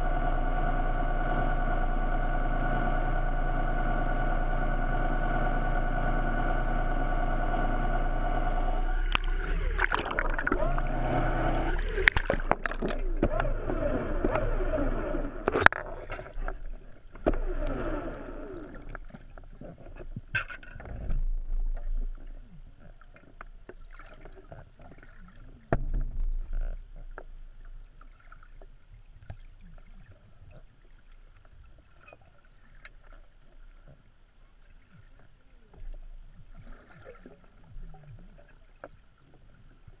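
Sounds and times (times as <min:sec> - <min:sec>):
steady underwater hum: 0:00.0 - 0:40.0
underwater gurgling and bubbling: 0:07.8 - 0:29.1, 0:29.8 - 0:40.0.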